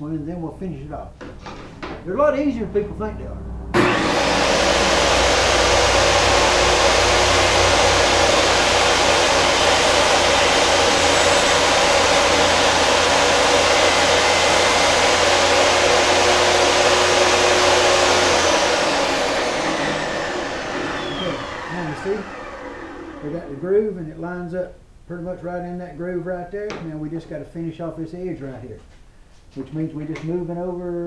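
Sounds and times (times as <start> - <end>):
table saw cutting: 2.0 - 23.6.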